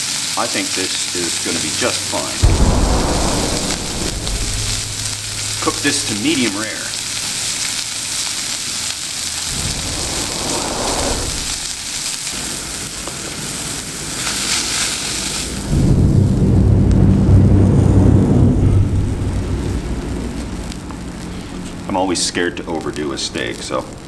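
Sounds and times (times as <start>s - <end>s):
traffic rumble: 1.5s - 12.6s.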